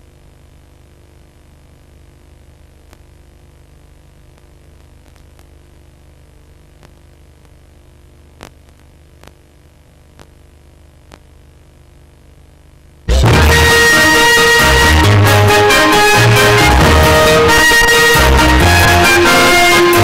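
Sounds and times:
low hum and hiss: 0.0 - 13.7
faint clicks: 8.4 - 9.4, 11.0 - 11.3
music: 13.1 - 20.0.

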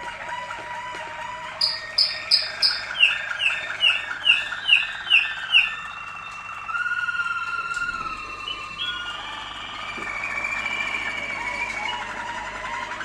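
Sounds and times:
canary singing: 1.5 - 9.8.

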